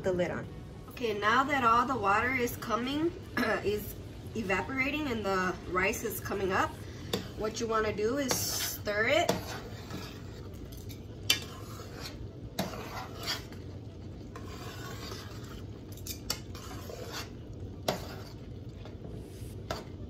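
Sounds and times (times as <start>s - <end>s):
water sizzling in pot: 1.2s - 20.0s
metal spoon stirring rice in pot: 6.4s - 19.0s.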